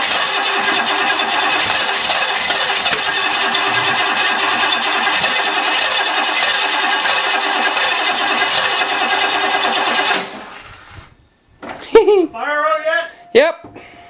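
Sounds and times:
engine starter cranking: 0.0 - 11.2.

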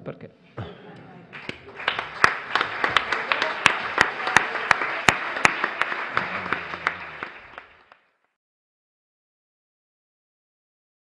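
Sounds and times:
audience applauding: 1.2 - 8.4
nearby person clapping: 1.3 - 8.2.

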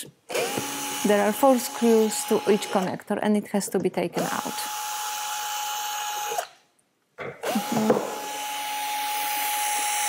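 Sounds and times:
cordless drill motor whine: 0.3 - 2.9, 7.4 - 10.0.

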